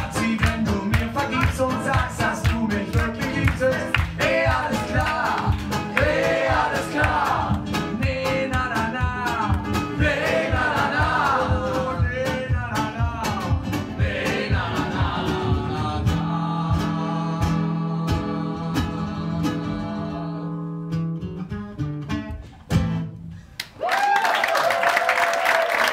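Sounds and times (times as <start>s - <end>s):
two voices singing: 0.0s - 20.8s
acoustic guitars strummed: 0.0s - 23.5s
audience applause: 23.6s - 25.9s.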